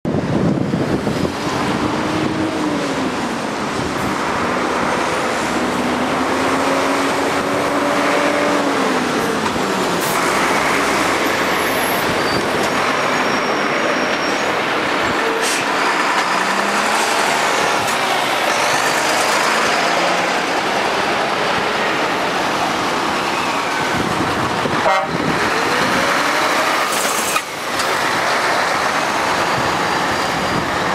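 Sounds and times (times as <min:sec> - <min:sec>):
traffic driving past: 0:00.1 - 0:30.9
truck passing close: 0:00.1 - 0:30.9.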